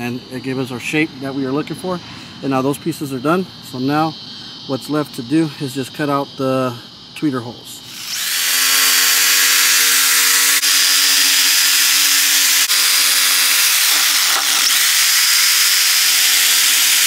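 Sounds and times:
jigsaw cutting board: 8.0s - 17.0s.

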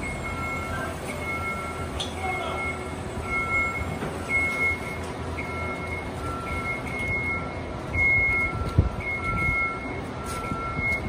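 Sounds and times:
heavy machine engine running: 0.0s - 11.0s
two-pitch warning alarm beeping: 0.0s - 11.0s.

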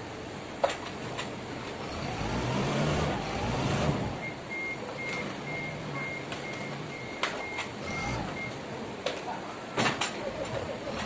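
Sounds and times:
forklift engine revving: 1.8s - 4.4s, 7.8s - 8.5s
reversing alarm beeping: 1.9s - 8.6s.

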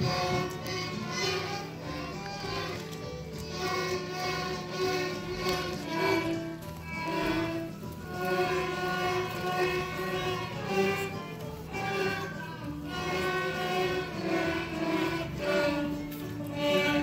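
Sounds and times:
string ensemble playing: 0.0s - 17.0s.

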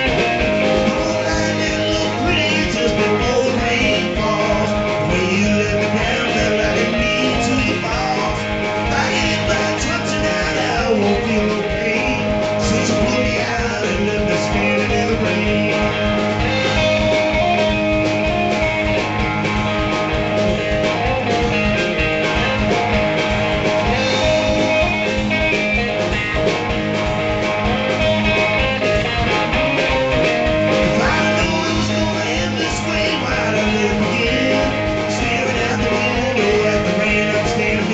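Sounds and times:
person singing into a microphone: 0.0s - 17.0s, 30.8s - 37.9s
drum kit beat: 0.0s - 37.9s
electric guitar: 0.0s - 37.9s
live blues band: 0.0s - 37.9s.

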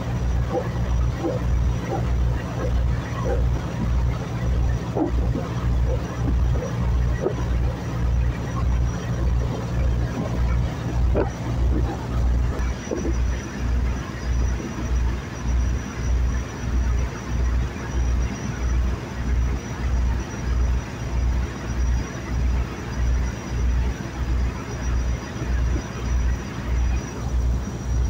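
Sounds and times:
boat engine thumping: 0.0s - 21.6s.

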